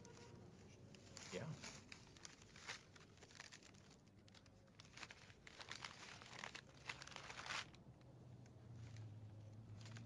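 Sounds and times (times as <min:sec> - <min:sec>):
wrapping paper crinkling: 0:00.9 - 0:07.8.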